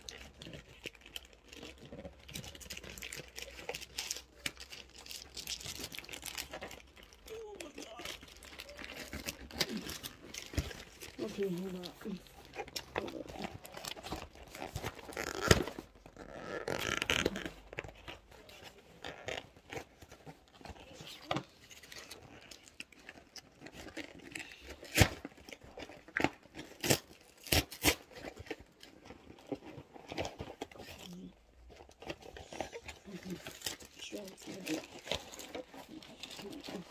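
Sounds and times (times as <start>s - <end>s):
plastic and cardboard crinkling: 0.0s - 36.9s.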